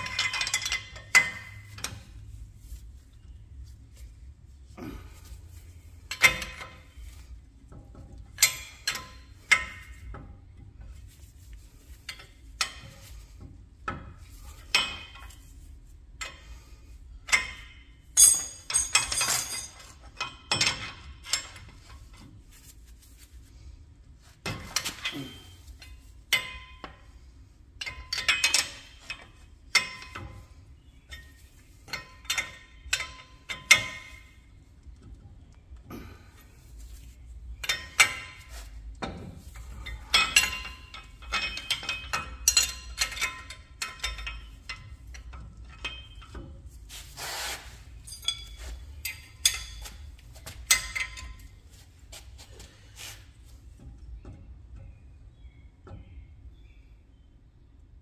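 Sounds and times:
metal tools clinking: 17.3s - 21.9s, 37.6s - 51.8s.

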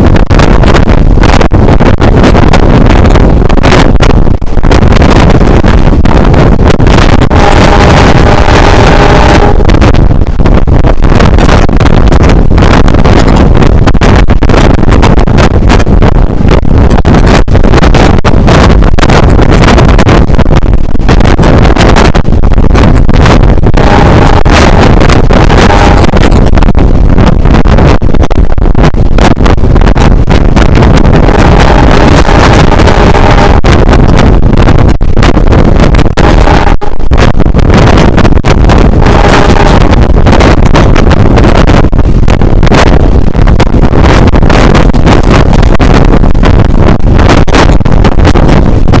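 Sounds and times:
wind buffeting microphone: 0.0s - 49.0s
train running noise: 6.8s - 9.9s, 23.8s - 26.0s, 31.2s - 33.6s, 36.2s - 36.9s, 39.0s - 40.8s.

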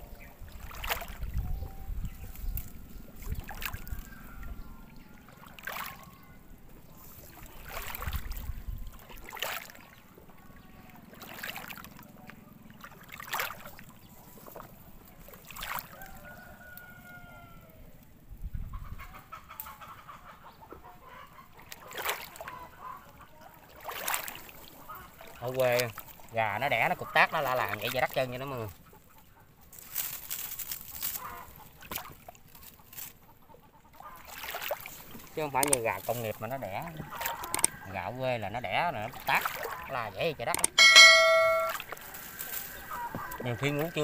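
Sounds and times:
hen cackling: 18.7s - 21.6s, 39.7s - 41.8s.

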